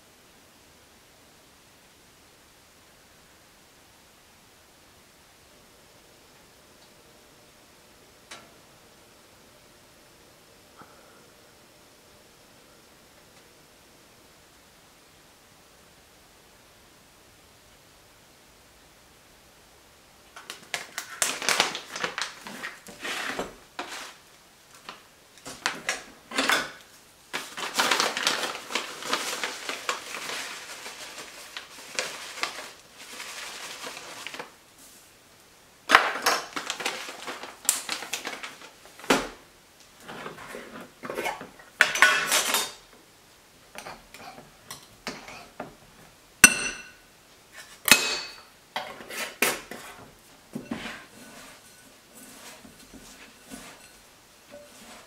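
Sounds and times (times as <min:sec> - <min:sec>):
packaging bag crinkling: 0:20.4 - 0:24.2, 0:27.3 - 0:34.6, 0:35.9 - 0:39.2
glass and jar clinking: 0:46.4 - 0:47.0.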